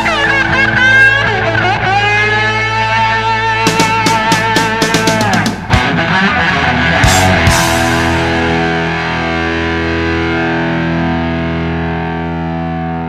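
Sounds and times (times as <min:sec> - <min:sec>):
distorted electric guitar chord: 0:00.0 - 0:13.0
drum and cymbal hits: 0:03.6 - 0:06.0.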